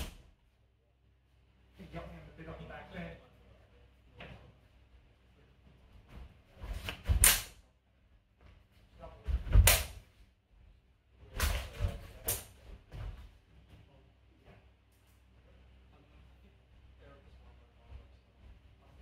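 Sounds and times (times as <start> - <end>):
swords clashing: 7.2 - 7.6.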